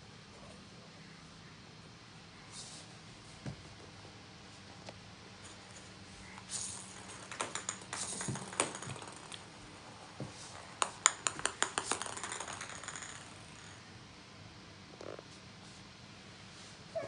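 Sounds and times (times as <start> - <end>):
plastic balls bouncing on wooden floor: 6.3 - 13.8.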